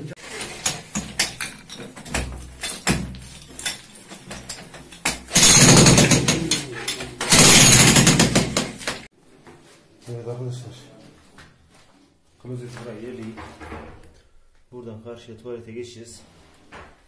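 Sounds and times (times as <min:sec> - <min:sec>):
tile rubble knocking and clattering: 0:00.4 - 0:07.3
demolition hammer hammering tiles: 0:00.4 - 0:09.1.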